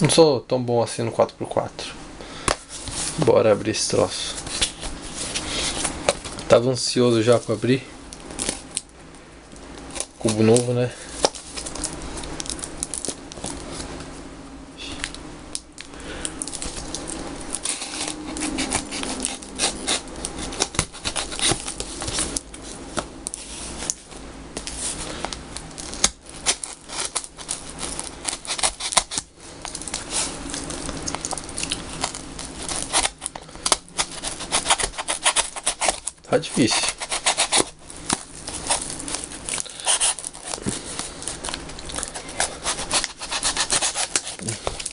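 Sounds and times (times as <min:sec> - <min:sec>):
tape crinkling and tearing: 0:02.5 - 0:08.9, 0:09.5 - 0:14.1, 0:14.9 - 0:44.9
knife cutting tape: 0:16.6 - 0:22.4, 0:25.8 - 0:44.9.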